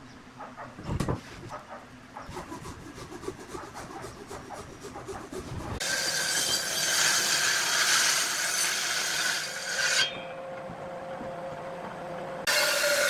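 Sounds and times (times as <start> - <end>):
table saw cutting wood: 2.4 - 10.2, 12.4 - 13.0.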